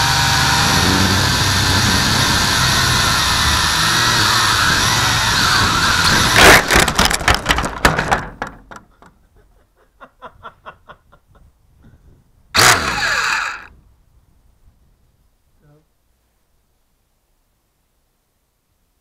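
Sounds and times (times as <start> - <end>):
quadcopter motors whining: 0.0 - 6.8, 12.6 - 13.7
drone crashing on roof: 0.5 - 8.8
clattering knocks: 6.1 - 9.2.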